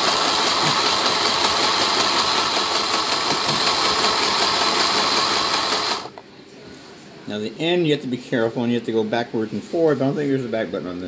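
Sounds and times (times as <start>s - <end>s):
sewing machine running: 0.0s - 6.1s.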